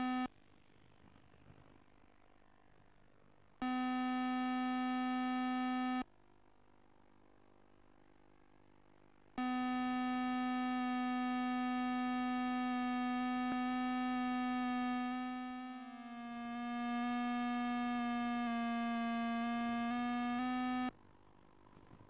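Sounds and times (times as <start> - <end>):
low buzzy electronic tone: 0.0 - 0.3, 3.6 - 6.0, 9.4 - 21.0.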